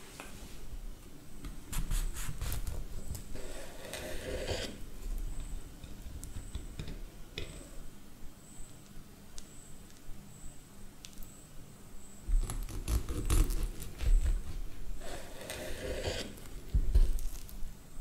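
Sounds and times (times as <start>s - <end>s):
knife cutting through crust: 1.7s - 4.8s, 12.3s - 17.6s
knife blade sawing scrape: 3.4s - 4.8s, 15.0s - 16.4s.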